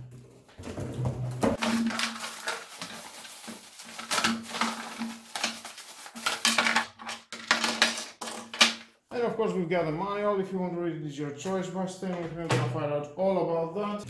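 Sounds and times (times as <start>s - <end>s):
plastic bag crinkling: 1.5s - 7.6s
plastic parts knocking on wood: 6.2s - 8.9s.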